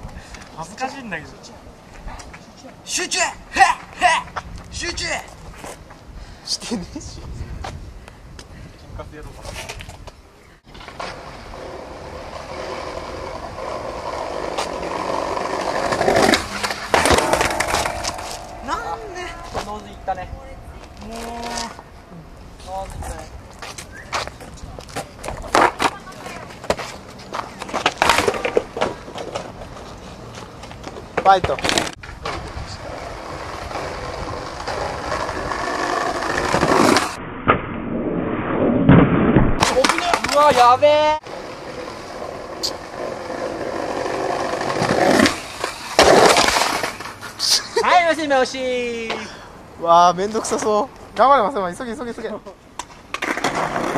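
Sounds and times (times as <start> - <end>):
skateboard wheels rolling on concrete: 0.0 - 37.2, 39.6 - 53.9
skateboard crashes: 10.7 - 20.0, 25.0 - 26.9, 27.7 - 29.6, 31.2 - 37.6, 38.8 - 40.7, 42.9 - 47.2, 52.8 - 53.9
skateboard tail clack: 12.4 - 19.9, 52.8 - 53.9.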